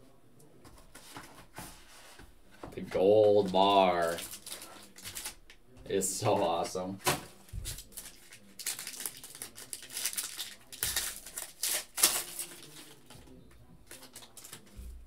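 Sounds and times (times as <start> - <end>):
foil wrapper crinkling and tearing: 4.1 - 5.4, 7.6 - 13.1, 13.9 - 14.8.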